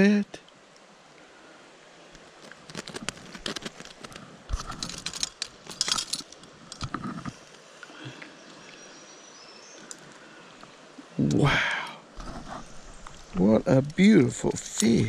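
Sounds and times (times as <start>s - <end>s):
faint steady hiss: 0.0s - 15.0s
landing net clicks and rustles: 2.4s - 7.5s.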